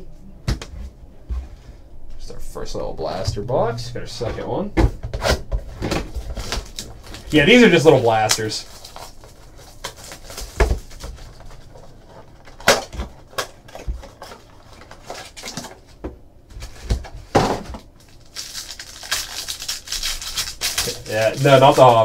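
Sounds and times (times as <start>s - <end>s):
cellophane wrapper crinkling: 6.2s - 15.9s, 17.9s - 22.0s.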